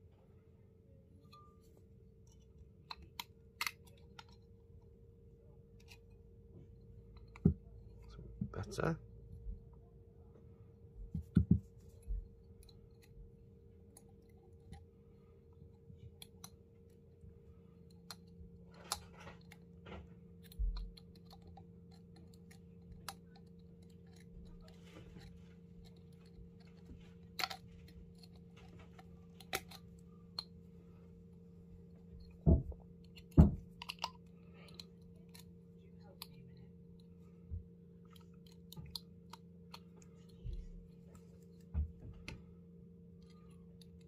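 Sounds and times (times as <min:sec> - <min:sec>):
faint steady hum: 0:00.0 - 0:44.0
wire clicking and tapping: 0:17.8 - 0:30.6.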